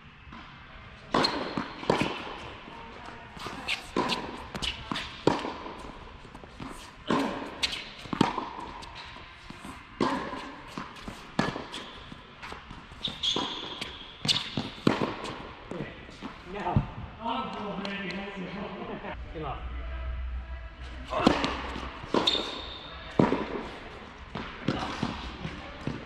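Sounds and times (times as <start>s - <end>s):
tennis ball struck and bouncing: 1.1s - 2.5s, 3.4s - 16.9s, 21.2s - 26.0s
sneakers squeaking on court: 3.4s - 5.9s, 6.5s - 16.4s, 21.4s - 23.8s.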